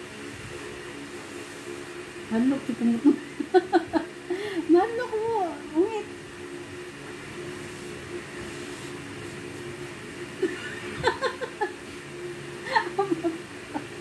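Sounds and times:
faint steady hum: 0.0s - 14.0s
woman laughing: 3.0s - 4.6s, 10.4s - 12.0s, 12.6s - 14.0s.

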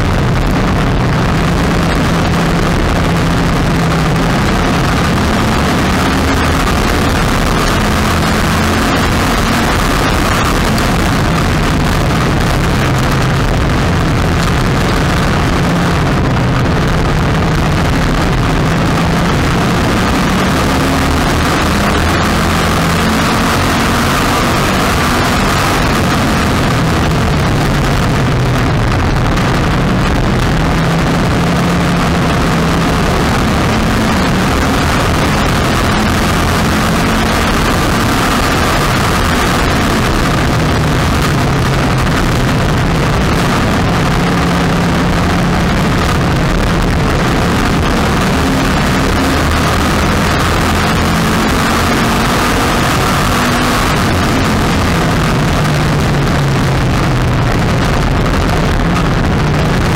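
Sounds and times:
race car engine at speed: 0.0s - 59.9s.

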